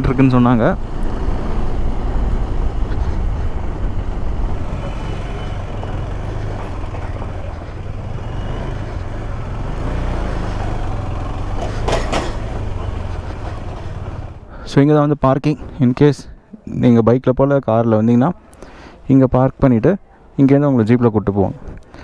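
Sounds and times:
motorcycle engine rumble: 0:00.0 - 0:14.8
road noise: 0:00.0 - 0:22.0.

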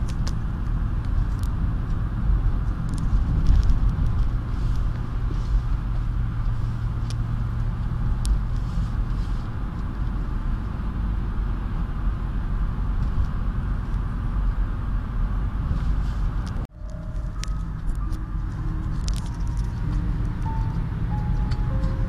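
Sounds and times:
car engine and road noise: 0:00.0 - 0:22.0
low droning note: 0:16.7 - 0:22.0.

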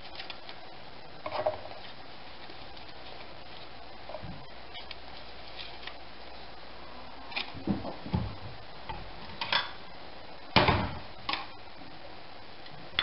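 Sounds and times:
cups and bowl set on countertop: 0:01.2 - 0:01.8.

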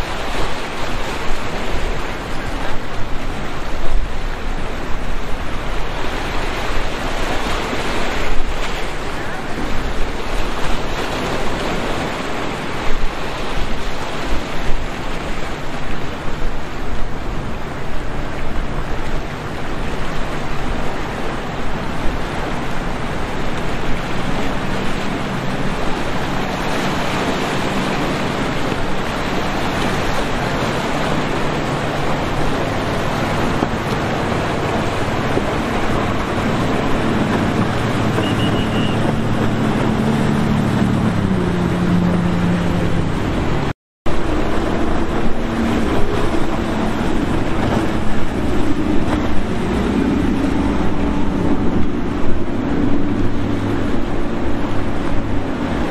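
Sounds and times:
boat engines running: 0:00.0 - 0:55.9
wind and water rushing: 0:00.0 - 0:55.9.

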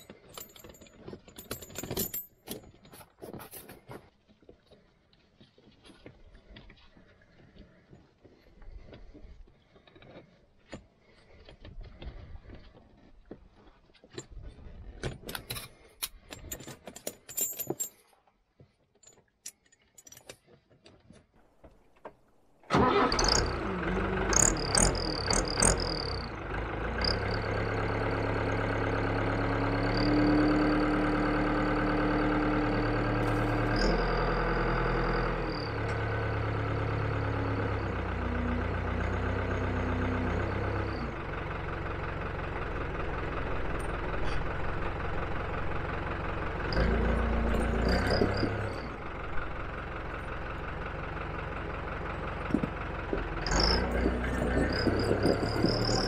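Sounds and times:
tyre chain links clinking: 0:00.0 - 0:04.0, 0:15.0 - 0:18.2, 0:19.0 - 0:20.4, 0:33.2 - 0:34.2, 0:46.8 - 0:49.0, 0:53.4 - 0:56.0
tractor diesel engine running: 0:00.0 - 0:17.5, 0:21.4 - 0:56.0.

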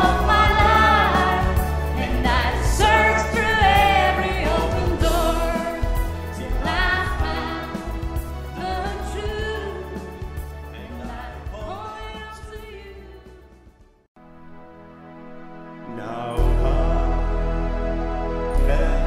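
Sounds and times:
person singing: 0:00.0 - 0:09.9, 0:15.8 - 0:17.8, 0:18.4 - 0:19.0
steady bass line: 0:00.0 - 0:11.9, 0:16.4 - 0:19.0.

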